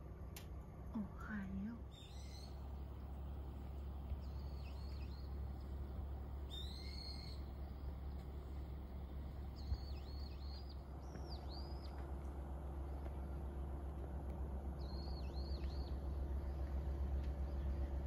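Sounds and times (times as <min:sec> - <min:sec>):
low rumble: 0:00.0 - 0:18.0
bird whistling calls: 0:01.9 - 0:02.6, 0:04.2 - 0:05.4, 0:06.5 - 0:07.5, 0:09.6 - 0:11.9.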